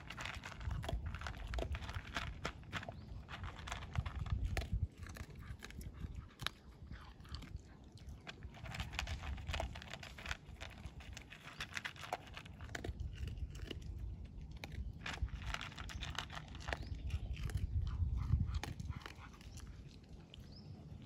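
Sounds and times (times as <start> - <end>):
dog crunching dry kibble: 0.0 - 21.0.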